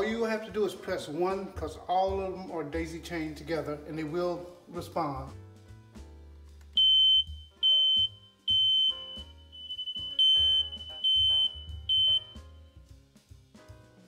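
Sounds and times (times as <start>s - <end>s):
smoke alarm beeping: 6.8s - 12.5s.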